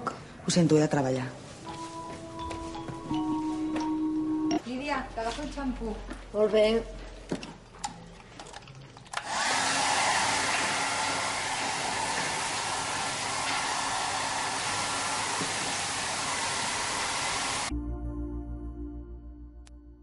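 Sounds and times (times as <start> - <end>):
rushing hiss with faint whine: 11.2 - 17.7.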